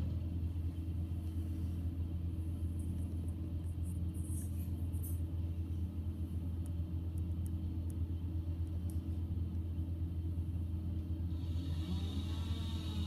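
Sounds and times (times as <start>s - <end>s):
wood chipper engine running: 11.2s - 13.0s.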